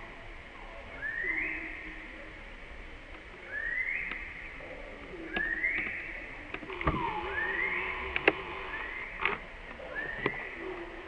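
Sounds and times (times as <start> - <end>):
high rising animal calls: 6.7 - 9.2
lower falling animal call: 6.7 - 9.2
sharp clicks: 8.1 - 8.4.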